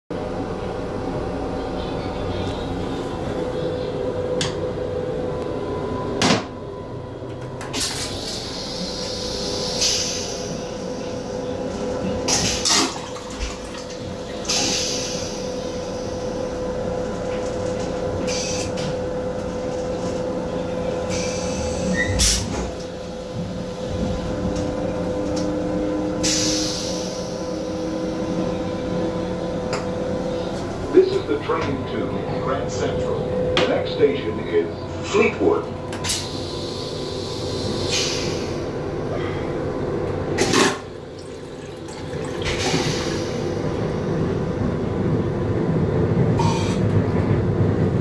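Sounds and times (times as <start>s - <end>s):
train running hum: 0.1s - 48.0s
toilet flush hissing: 40.4s - 43.8s.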